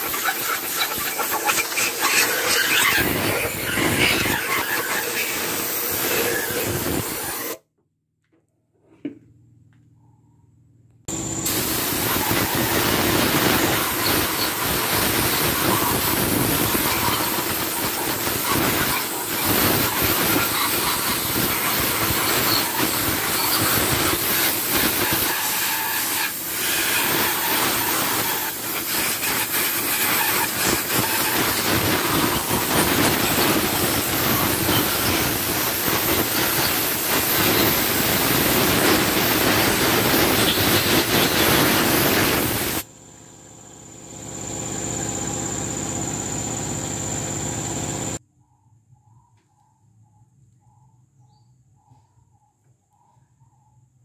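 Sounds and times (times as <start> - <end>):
spray jet hissing: 0.0 - 7.6, 11.4 - 42.8.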